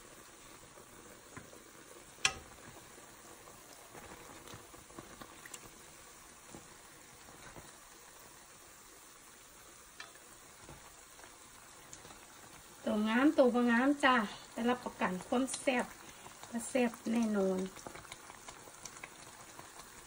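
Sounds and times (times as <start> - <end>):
dough sizzling in hot oil: 0.0 - 20.0
metal tongs clicking on pan: 2.2 - 2.6, 10.0 - 10.2.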